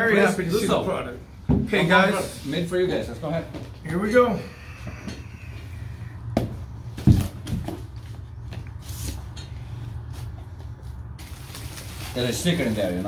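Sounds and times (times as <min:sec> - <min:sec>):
steady low hum: 0:02.3 - 0:11.2
cardboard and foam rustling: 0:10.1 - 0:13.0.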